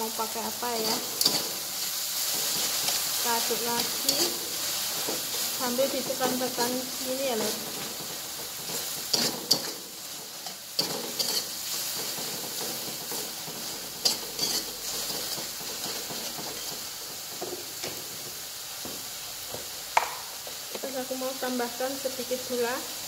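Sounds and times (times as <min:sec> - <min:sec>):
frying oil sizzling: 0:00.0 - 0:23.0
metal spatula scraping wok: 0:00.1 - 0:18.0.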